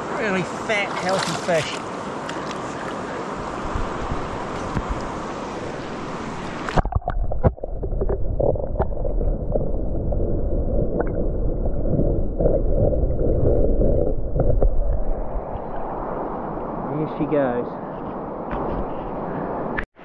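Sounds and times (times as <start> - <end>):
river water rushing over stones: 0.1 - 10.1
underwater rumble and gurgle: 4.1 - 16.8.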